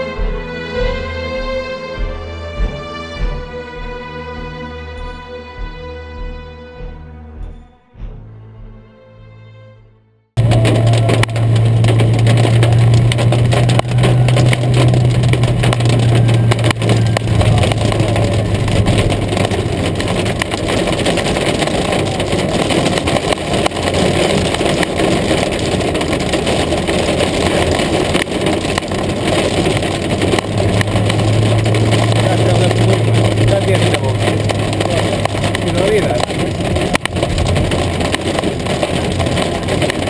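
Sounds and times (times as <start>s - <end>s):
car engine drone: 0.0s - 9.8s, 10.4s - 40.0s
hail clattering on car roof: 10.4s - 40.0s.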